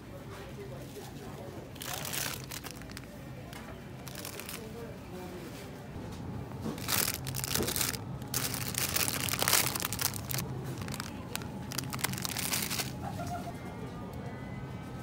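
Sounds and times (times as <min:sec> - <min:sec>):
low steady hum: 0:01.4 - 0:15.0
plastic bag crinkling: 0:01.8 - 0:04.8, 0:06.7 - 0:13.2.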